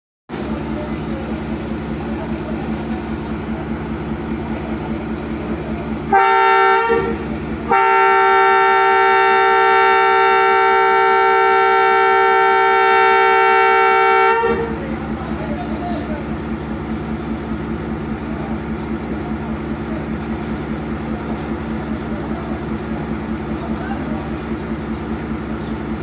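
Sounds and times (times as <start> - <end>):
diesel engine running: 0.3 - 26.0
locomotive air horn chord: 6.0 - 14.9.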